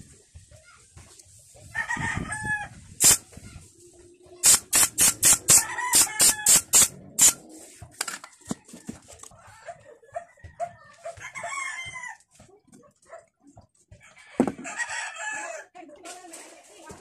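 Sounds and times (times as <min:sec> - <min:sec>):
chickens clucking: 0:02.4 - 0:04.4
pneumatic staple gun firing: 0:03.0 - 0:03.2, 0:04.4 - 0:07.4.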